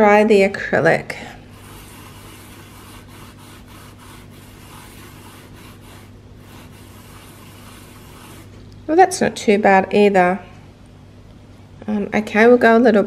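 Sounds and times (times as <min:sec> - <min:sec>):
sponge rubbing on plastic: 0:01.5 - 0:08.6.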